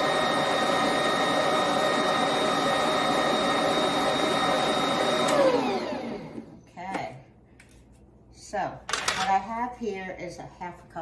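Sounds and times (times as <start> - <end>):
stand mixer motor running: 0.0 - 6.6.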